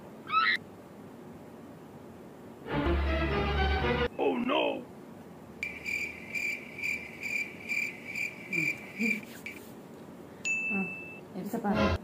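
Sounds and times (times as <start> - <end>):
cricket chirping: 5.6 - 9.6.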